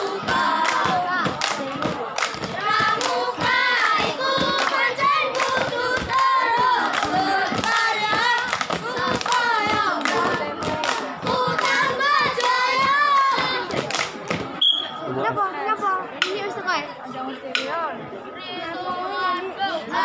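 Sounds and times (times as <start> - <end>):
boys singing in unison: 0.0 - 13.9, 18.5 - 20.0
hand claps: 0.0 - 14.5.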